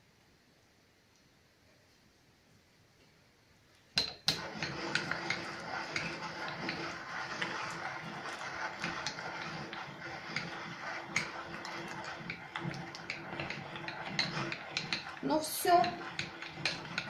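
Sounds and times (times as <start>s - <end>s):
electric meat grinder humming: 4.4s - 17.0s.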